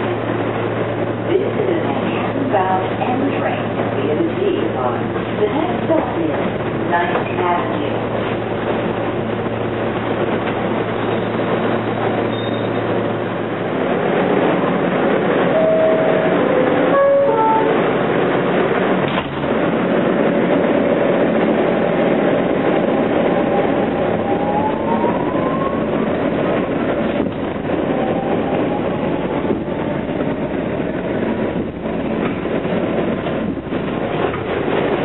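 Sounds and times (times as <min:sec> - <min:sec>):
subway car rumble and rattle: 0:00.0 - 0:35.0.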